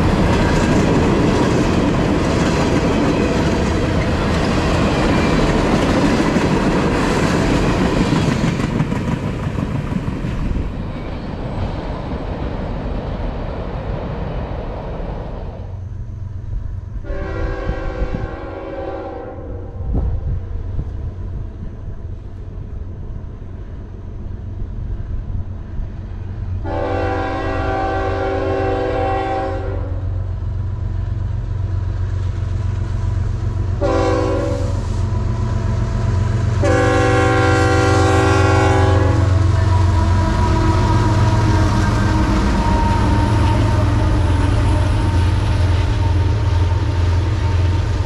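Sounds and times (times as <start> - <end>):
locomotive engine rumble: 0.0 - 18.4, 19.6 - 48.0
locomotive air horn blasts: 17.0 - 19.8, 26.6 - 30.1, 33.8 - 35.1, 36.6 - 45.3.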